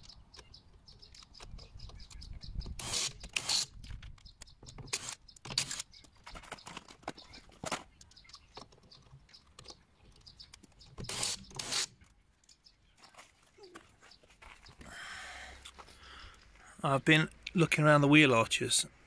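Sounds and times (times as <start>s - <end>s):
metal tools clinking on gravel: 5.0s - 8.7s.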